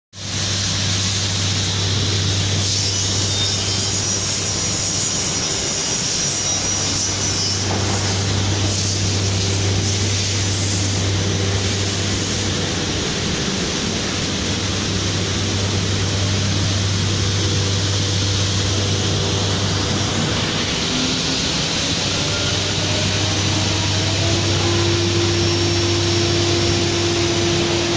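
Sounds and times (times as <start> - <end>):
machine spindle rushing noise: 0.8 - 27.9
faint rising whine: 1.4 - 27.9
deep hum: 7.6 - 27.9.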